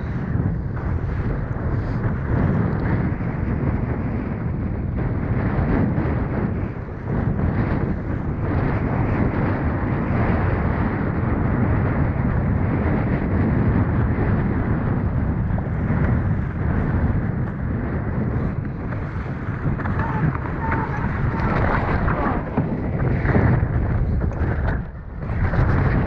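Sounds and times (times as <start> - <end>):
wind buffeting microphone: 0.0 - 26.0
water rushing along boat hull: 12.6 - 26.0.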